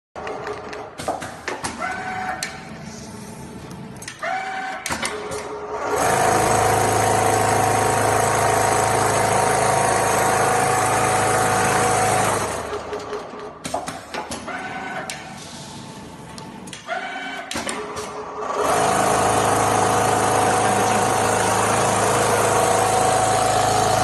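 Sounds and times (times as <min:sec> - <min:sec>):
machine clicks and whirring: 0:00.2 - 0:02.8, 0:03.6 - 0:15.5, 0:16.3 - 0:24.0
sewing machine stitching: 0:05.1 - 0:13.3, 0:17.6 - 0:24.0.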